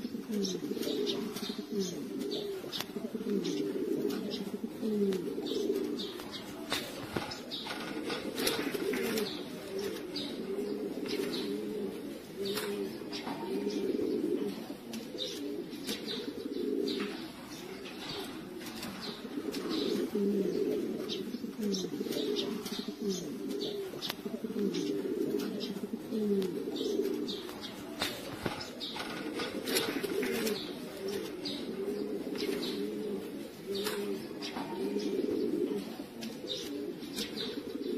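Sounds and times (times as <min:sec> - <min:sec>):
pigeons cooing: 0:00.0 - 0:37.9.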